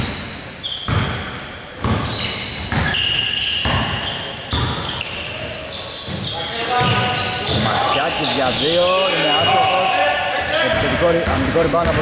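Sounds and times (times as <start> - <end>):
sneakers squeaking: 0.0 - 12.0
basketball bouncing on wooden floor: 0.9 - 3.0, 3.6 - 4.9, 6.1 - 7.7, 11.2 - 12.0.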